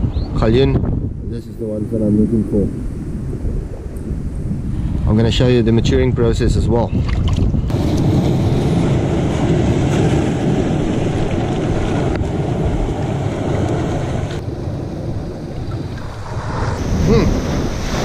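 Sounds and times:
wind buffeting microphone: 0.0 - 18.0
surf on rocky shore: 7.7 - 18.0.

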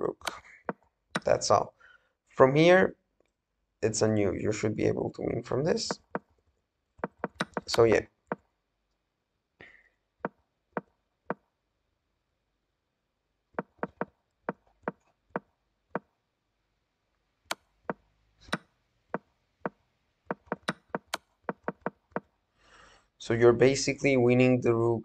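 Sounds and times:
sharp wooden move clicks: 7.0 - 8.4, 20.3 - 22.3.

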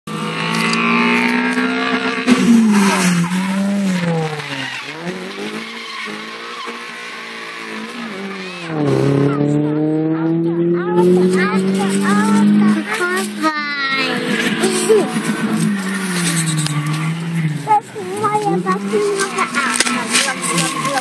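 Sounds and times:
car engine revving: 0.1 - 21.0
tyres squealing: 3.1 - 8.8, 11.5 - 21.0.

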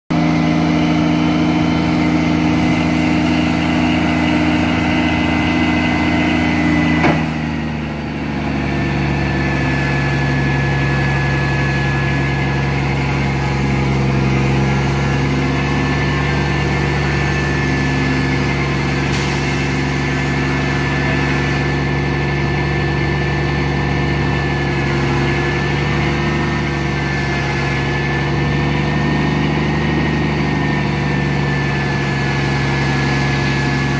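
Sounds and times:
diesel truck engine running: 0.1 - 33.9.

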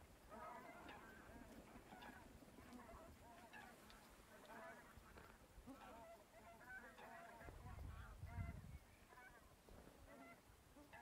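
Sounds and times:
geese honking: 0.3 - 11.0
wind rumble on microphone: 7.4 - 8.9.

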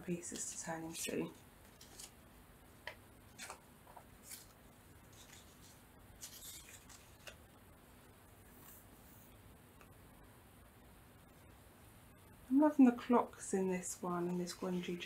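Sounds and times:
paper rustling and tapping: 2.8 - 4.5, 5.1 - 7.4.

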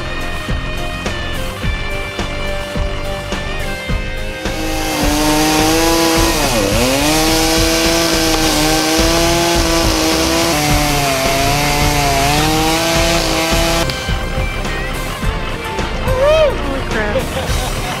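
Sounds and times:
chainsaw cutting wood: 4.2 - 14.7.

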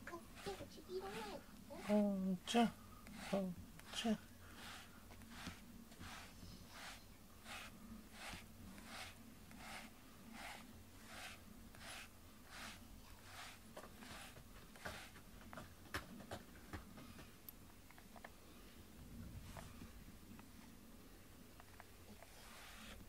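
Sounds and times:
brush strokes through fur: 0.1 - 15.3, 22.1 - 23.0.

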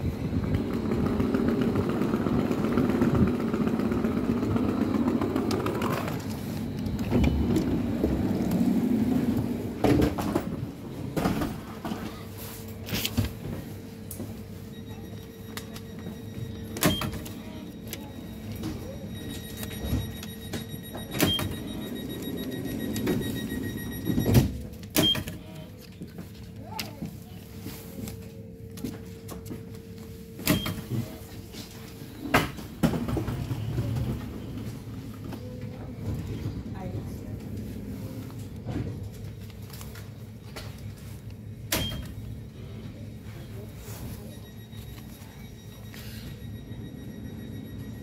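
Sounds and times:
electric train rumbling to a stop: 0.0 - 11.1
standing train hum: 0.0 - 25.0
faint repeated beeping: 14.6 - 25.6, 43.4 - 48.0.

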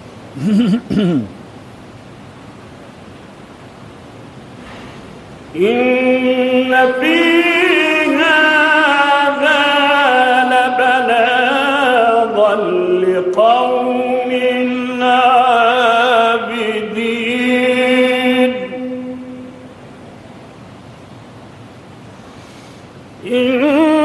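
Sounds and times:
man chanting melodically: 5.6 - 19.6.

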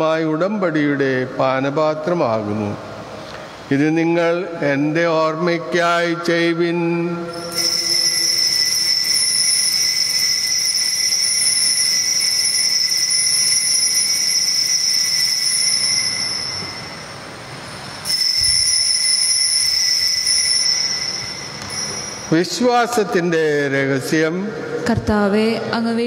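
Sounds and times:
bell ringing shrilly: 7.3 - 23.5.

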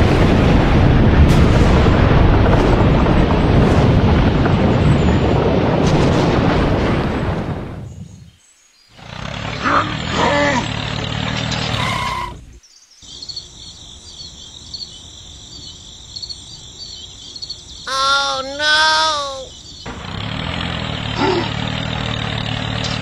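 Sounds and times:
birds chirping: 7.9 - 22.0.

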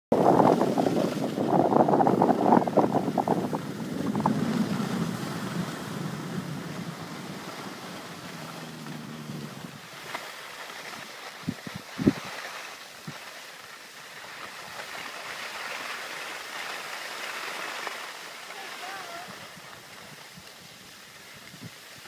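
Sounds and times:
wind buffeting microphone: 0.1 - 10.2, 10.9 - 12.3
skis scraping on snow: 0.2 - 22.0.

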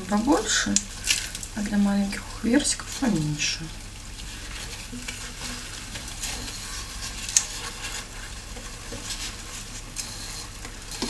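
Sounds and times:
cardboard rustling and scraping: 3.9 - 11.0.

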